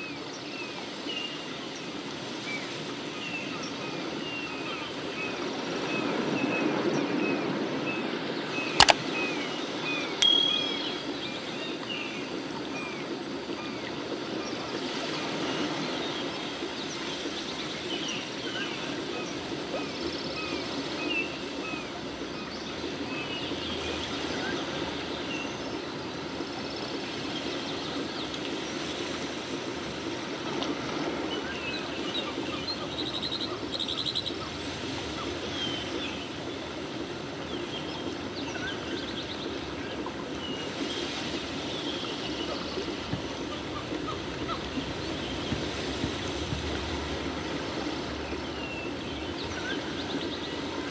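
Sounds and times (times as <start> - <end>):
rapid bird trill: 10.2 - 11.4
small birds chirping: 40.5 - 47.5.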